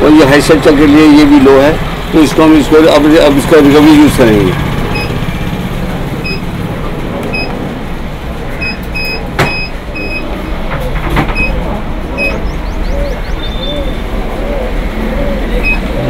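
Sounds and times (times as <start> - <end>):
keypad beeping: 4.9 - 5.2, 6.2 - 6.5, 7.3 - 7.6, 8.6 - 10.4, 11.3 - 12.4, 15.6 - 16.0.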